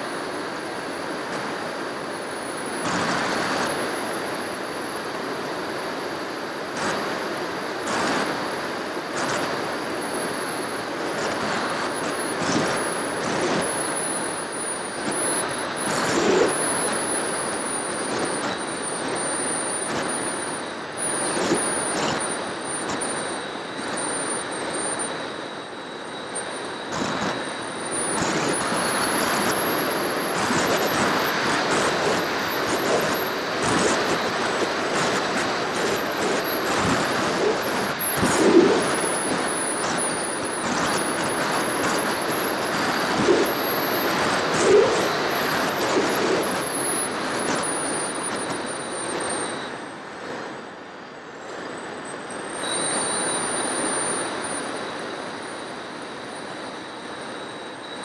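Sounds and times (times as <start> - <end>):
faint steady tone: 0.0 - 58.0
high propeller whine: 8.0 - 49.6
airflow rushing: 30.3 - 40.2, 41.9 - 47.3.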